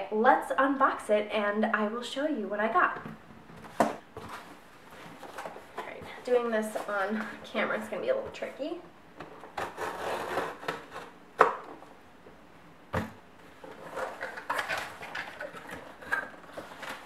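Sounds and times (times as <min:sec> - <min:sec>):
cardboard scraping and rustling: 0:03.6 - 0:07.4, 0:09.4 - 0:11.2, 0:13.5 - 0:17.0.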